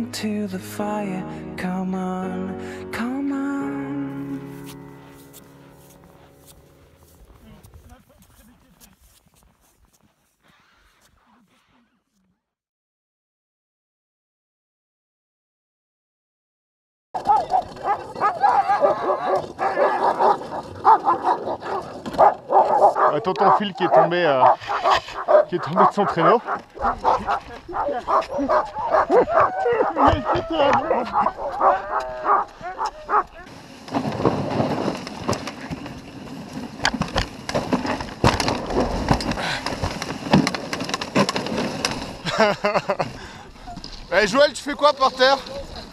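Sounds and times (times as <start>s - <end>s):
sled runners scraping snow: 4.2s - 12.0s, 17.2s - 45.9s
sled dogs yelping and whining: 17.2s - 33.6s, 43.4s - 44.2s.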